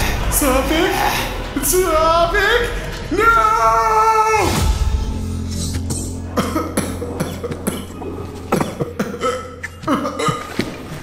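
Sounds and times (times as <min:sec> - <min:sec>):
man coughing: 0:05.8 - 0:10.8.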